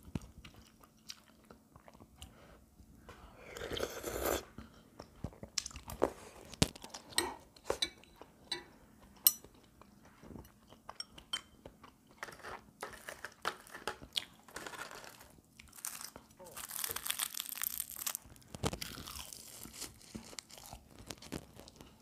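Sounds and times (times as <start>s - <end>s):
person chewing and crunching food: 0.0s - 2.4s, 3.3s - 22.0s
chopsticks and spoon clicking on bowls: 7.1s - 9.7s.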